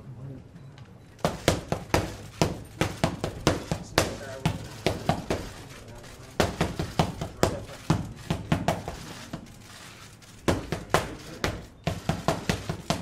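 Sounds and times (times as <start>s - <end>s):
boxing gloves smacking mitts: 1.2s - 5.6s, 6.4s - 9.5s, 10.4s - 13.0s.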